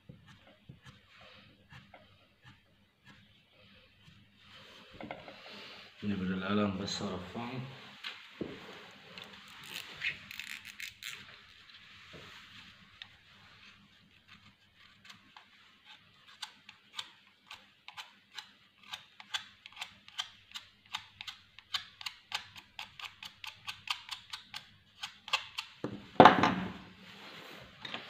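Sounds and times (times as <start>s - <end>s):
knife shaving pencil: 0.1s - 4.3s, 14.2s - 25.8s.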